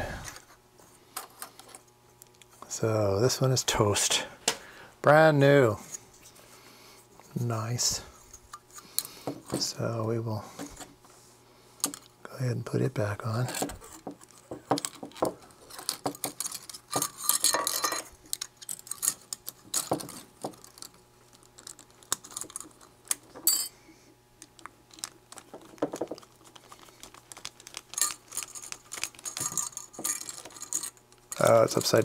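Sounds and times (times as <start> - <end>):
small metal parts clinking: 13.4 - 23.7, 24.5 - 32.0.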